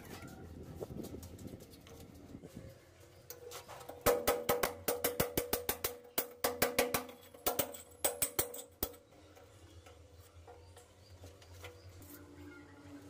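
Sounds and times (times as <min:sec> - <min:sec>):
hammer striking chisel on brick: 0:04.0 - 0:09.0.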